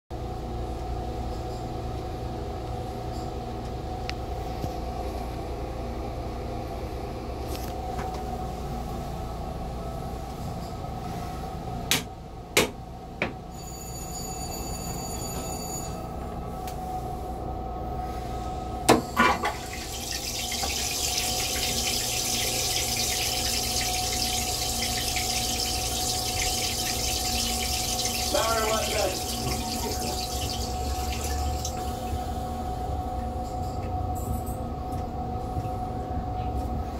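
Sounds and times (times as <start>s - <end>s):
toilet flush clicks: 18.9s - 32.2s
rinse water hissing rush: 19.2s - 32.3s.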